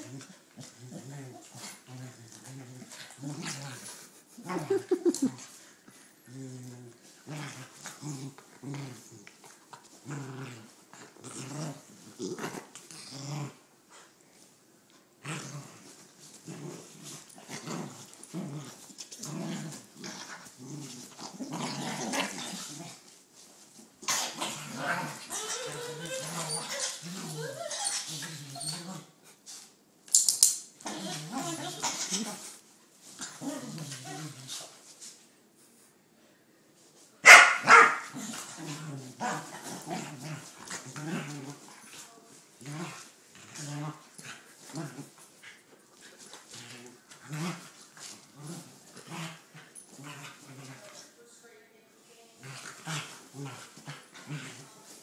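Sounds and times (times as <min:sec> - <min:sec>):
dogs growling: 0:00.0 - 0:05.6, 0:06.2 - 0:14.1, 0:15.2 - 0:23.1, 0:24.0 - 0:29.2, 0:38.0 - 0:42.0
dog barking: 0:37.2 - 0:38.0.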